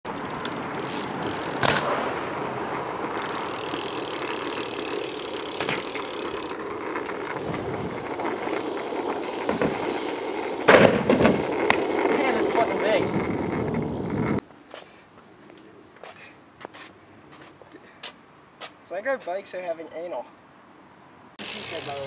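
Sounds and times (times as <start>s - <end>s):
bike tyres rolling on asphalt: 0.1s - 14.5s, 21.4s - 22.0s
wind noise: 7.2s - 10.0s, 10.8s - 14.4s.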